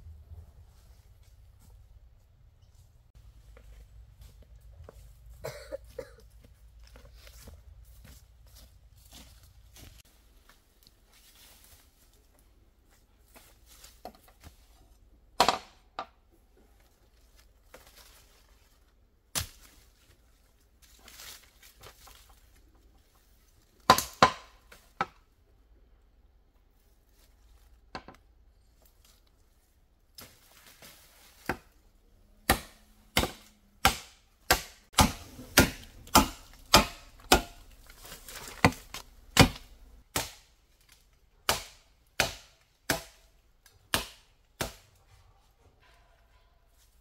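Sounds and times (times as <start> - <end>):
blade chopping bamboo: 32.4 - 40.5, 41.4 - 43.3, 43.9 - 44.8.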